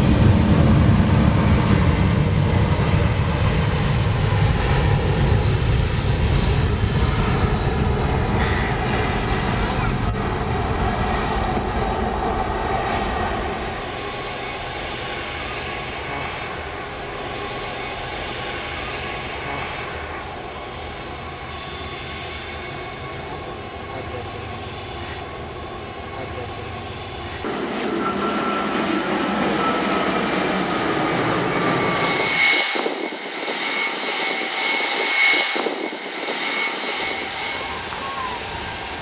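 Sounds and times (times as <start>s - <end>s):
high jet engine whine: 0.0s - 39.0s
jet engines roaring at takeoff: 0.0s - 39.0s.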